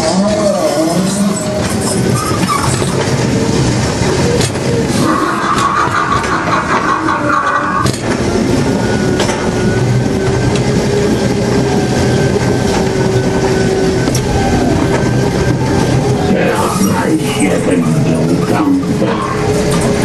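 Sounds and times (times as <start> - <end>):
ride car rumbling on track: 0.0 - 20.0.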